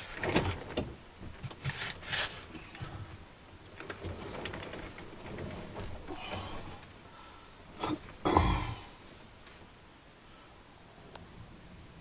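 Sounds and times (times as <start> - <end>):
bedding and clothing rustling: 0.0 - 9.8.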